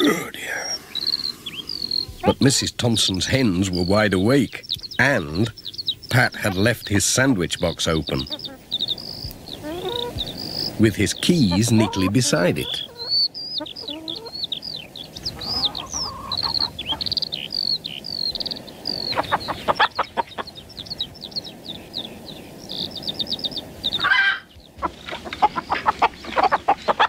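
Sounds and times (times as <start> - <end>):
hens clucking: 0.0 - 27.0
small birds chirping: 0.0 - 27.0
loud hen cry: 8.2 - 10.8, 11.4 - 14.5, 15.2 - 17.8, 18.8 - 20.5, 24.0 - 27.0.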